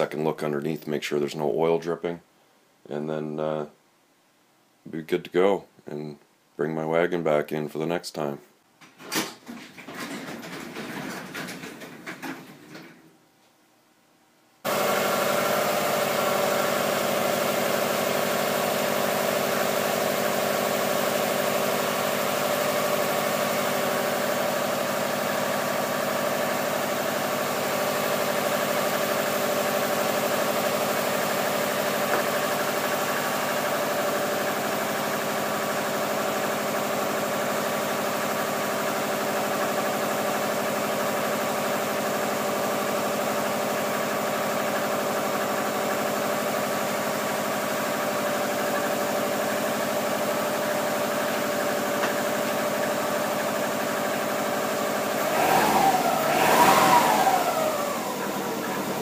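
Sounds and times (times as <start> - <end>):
car engine idling: 14.7 - 59.0.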